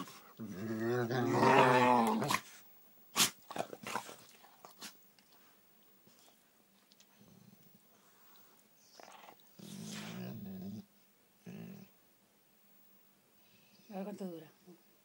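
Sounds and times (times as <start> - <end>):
dog growling: 0.0 - 2.5, 8.9 - 12.0.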